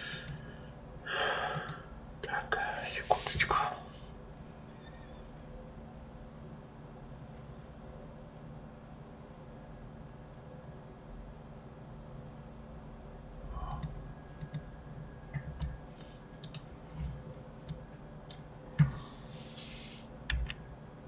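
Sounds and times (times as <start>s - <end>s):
mouse and keyboard clicks: 16.4s - 18.9s
soft hiss: 18.9s - 20.2s.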